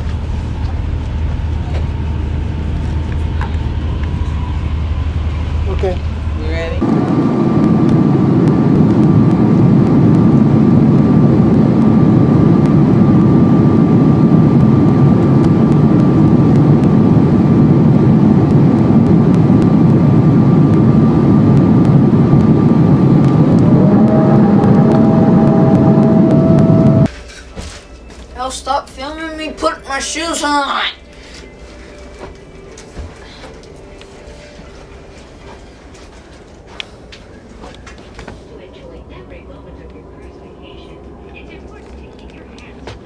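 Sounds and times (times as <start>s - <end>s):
vehicle engine rumble: 0.0s - 27.1s
thin steady whine: 0.1s - 27.3s, 29.8s - 43.0s
rising tone: 6.8s - 27.1s.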